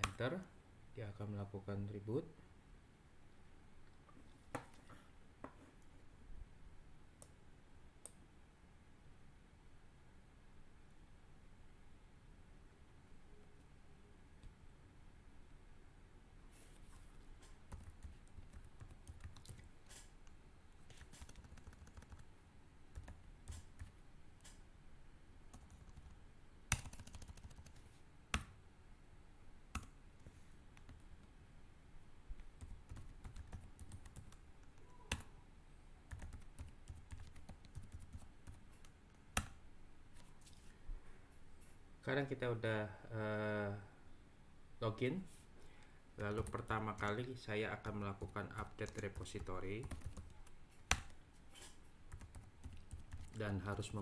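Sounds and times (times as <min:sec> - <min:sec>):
computer keyboard typing: 0:17.7 - 0:19.7, 0:20.9 - 0:22.3, 0:22.9 - 0:23.9, 0:25.5 - 0:27.8, 0:32.6 - 0:35.3, 0:36.1 - 0:39.5, 0:48.2 - 0:51.2, 0:52.1 - 0:53.5.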